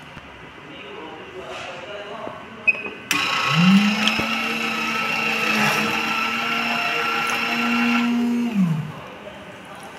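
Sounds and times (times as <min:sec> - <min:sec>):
vending machine motor humming: 0:03.1 - 0:09.0.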